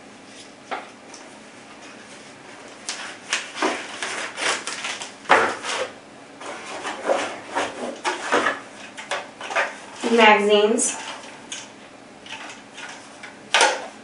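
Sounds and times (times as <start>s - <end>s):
packaging rustling and scraping: 1.8s - 10.3s.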